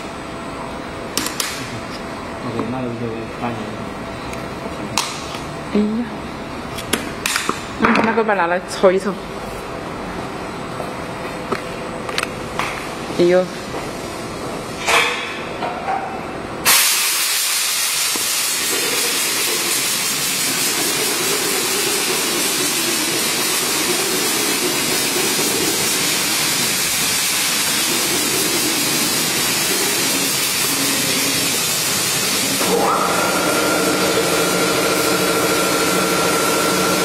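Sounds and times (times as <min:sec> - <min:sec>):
loud steady machine hiss: 0:16.6 - 0:37.0.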